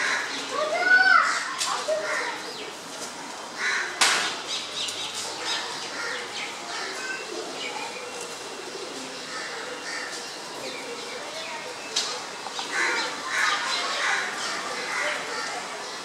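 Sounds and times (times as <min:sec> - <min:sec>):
birds calling faintly: 0:03.6 - 0:16.0
sharp crack: 0:04.0 - 0:04.5.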